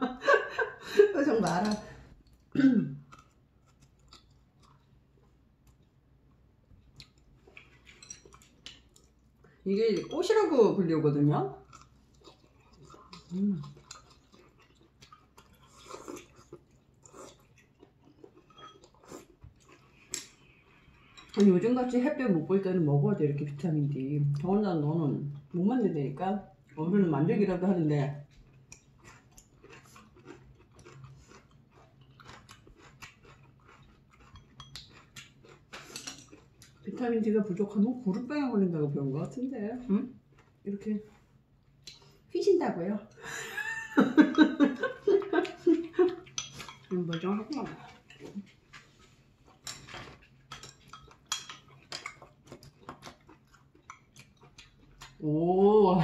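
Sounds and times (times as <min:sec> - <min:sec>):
soft eating sounds: 0:00.1 - 0:56.0
utensils clinking on ceramic bowls: 0:01.3 - 0:01.9, 0:07.8 - 0:08.5, 0:34.2 - 0:35.0, 0:46.2 - 0:47.8, 0:49.6 - 0:52.1
chopsticks ticking: 0:01.3 - 0:04.8, 0:07.0 - 0:09.2, 0:11.6 - 0:20.4, 0:28.3 - 0:36.9, 0:41.8 - 0:42.1, 0:45.2 - 0:48.8, 0:49.4 - 0:55.2
faint chewing and mouth clicks: 0:01.4 - 0:09.7, 0:11.6 - 0:21.6, 0:28.2 - 0:37.0, 0:40.2 - 0:42.3, 0:44.8 - 0:55.2.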